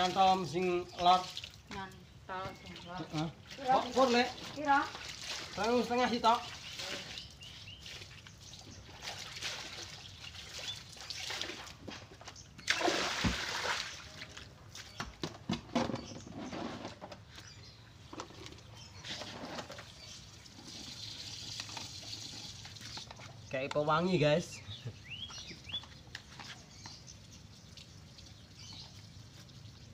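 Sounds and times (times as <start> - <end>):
hose trickling into bucket: 0.0 - 1.7, 3.0 - 14.9, 18.1 - 24.1
water splashing onto concrete: 0.0 - 2.0, 2.6 - 15.0, 19.8 - 24.0
water sloshing in plastic basin: 0.0 - 27.1.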